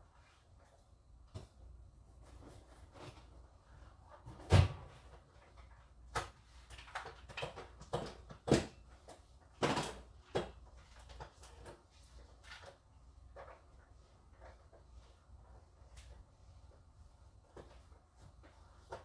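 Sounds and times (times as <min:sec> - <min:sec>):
knocks and clunks of objects: 0:04.2 - 0:12.7.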